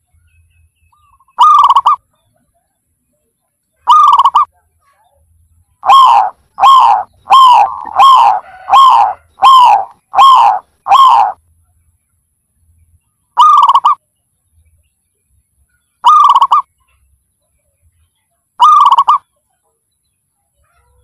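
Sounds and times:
dove cooing: 0:01.4 - 0:02.0, 0:03.9 - 0:04.5, 0:05.8 - 0:11.4, 0:13.4 - 0:14.0, 0:16.0 - 0:16.7, 0:18.6 - 0:19.2.

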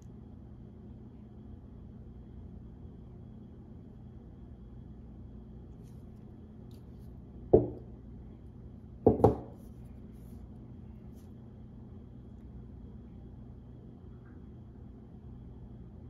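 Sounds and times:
steady low hum: 0:00.0 - 0:16.0
metal knocks on a table: 0:07.6 - 0:07.9, 0:09.1 - 0:09.6.

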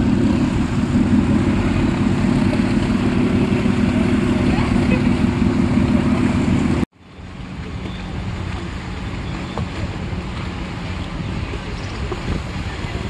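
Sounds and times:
boat engines running: 0:00.0 - 0:13.0
wind noise on microphone: 0:00.0 - 0:13.0.

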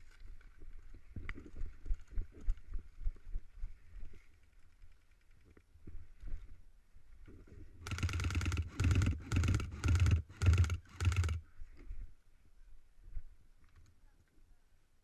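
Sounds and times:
airsoft gun firing bursts: 0:07.8 - 0:11.4.

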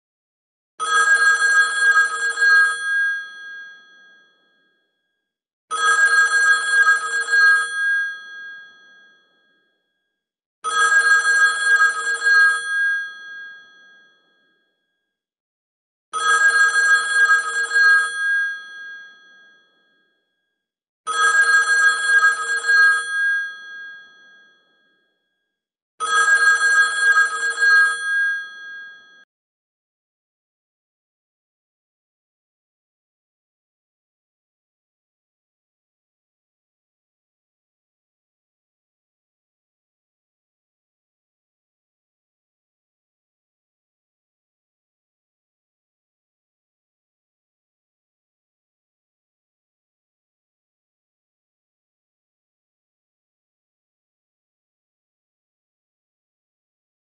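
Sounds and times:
telephone bell ringing: 0:00.8 - 0:04.4, 0:05.7 - 0:09.2, 0:10.6 - 0:14.2, 0:16.2 - 0:19.7, 0:21.1 - 0:24.6, 0:26.0 - 0:29.3.

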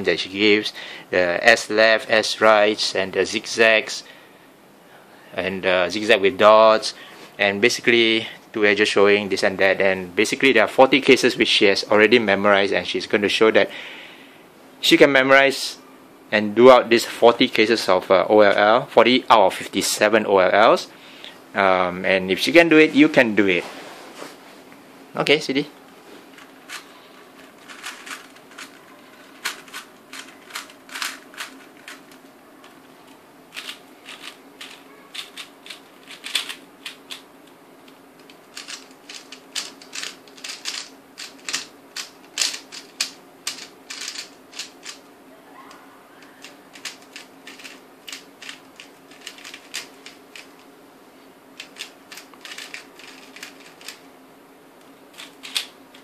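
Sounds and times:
speed cube clicking: 0:33.6 - 0:37.2, 0:38.2 - 0:45.0, 0:46.4 - 0:50.5, 0:51.6 - 0:54.0.

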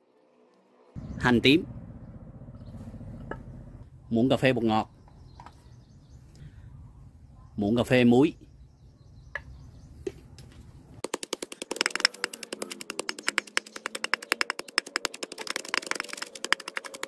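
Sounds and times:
wooden pestle pounding in mortar: 0:11.0 - 0:17.0.

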